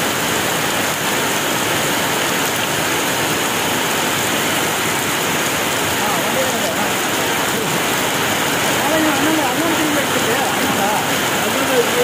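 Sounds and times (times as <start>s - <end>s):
heavy rain on standing water: 0.0s - 12.0s.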